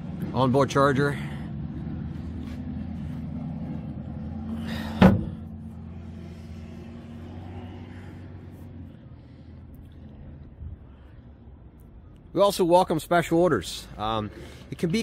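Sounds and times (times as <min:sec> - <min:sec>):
low motor hum: 0:01.1 - 0:12.1
boat hatch lid thump: 0:05.0 - 0:05.4.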